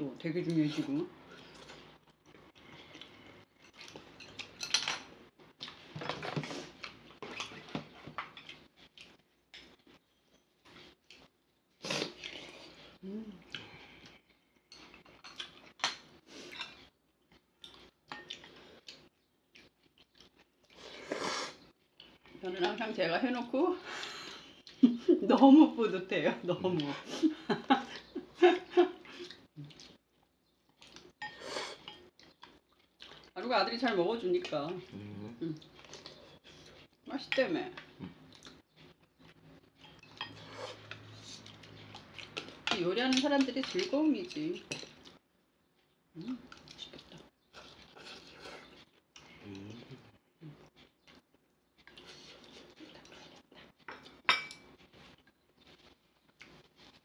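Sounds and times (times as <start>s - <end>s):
utensils clinking against ceramic bowls: 3.6s - 5.1s, 39.8s - 40.5s, 53.9s - 54.7s
chewing and slurping noodles: 46.3s - 57.0s.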